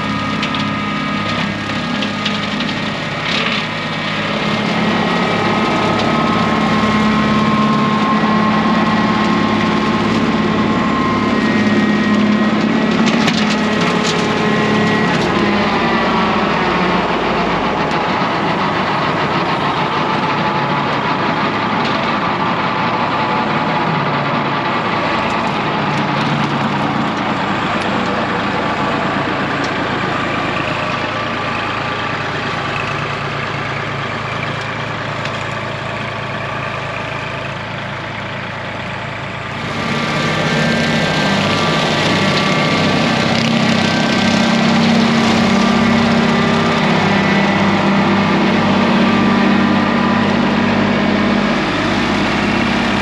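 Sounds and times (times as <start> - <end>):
rotary cutter chopping weeds: 0.0 - 16.0, 39.5 - 50.6
tractor diesel engine under load: 0.0 - 53.0.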